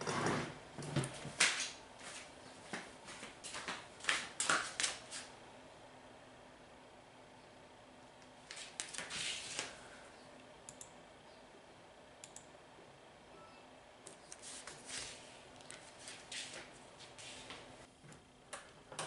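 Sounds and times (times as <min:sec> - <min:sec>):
computer mouse clicking: 0:10.7 - 0:10.9, 0:12.2 - 0:12.5.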